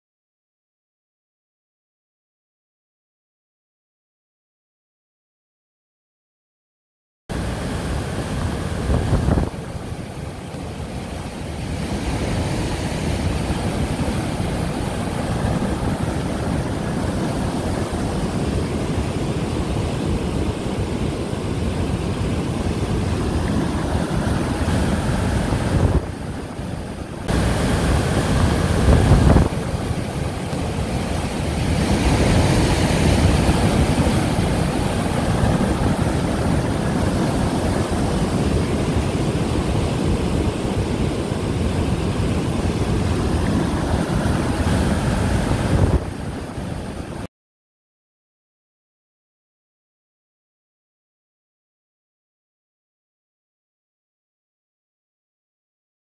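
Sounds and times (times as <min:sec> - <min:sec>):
river rushing over rapids: 0:07.3 - 0:47.2
wind buffeting microphone: 0:07.3 - 0:47.3.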